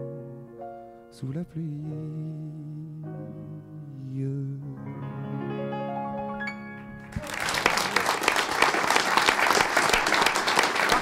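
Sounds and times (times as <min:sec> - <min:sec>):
audience applause: 0:07.1 - 0:11.0.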